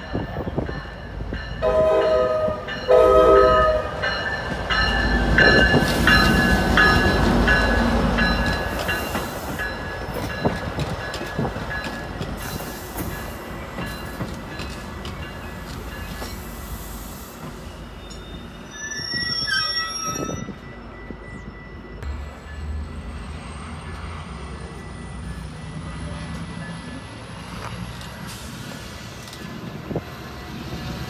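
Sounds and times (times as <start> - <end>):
diesel locomotive engine rumble: 0.0 - 31.0
passenger coaches rolling on rails: 0.0 - 31.0
wheel squeal: 17.6 - 20.6.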